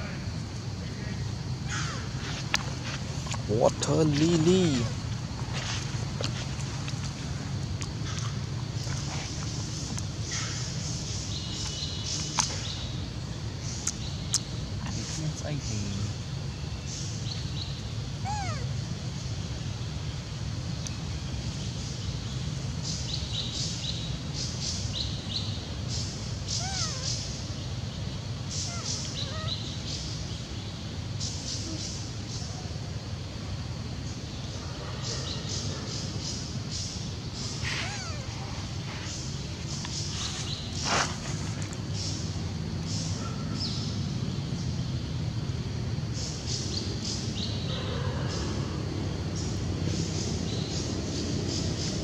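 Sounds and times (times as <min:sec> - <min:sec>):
low background rumble: 0:00.0 - 0:52.0
bird chirping: 0:07.8 - 0:32.7
high-pitched chirping calls: 0:17.8 - 0:18.7, 0:26.4 - 0:27.4, 0:28.5 - 0:30.1, 0:37.5 - 0:38.4.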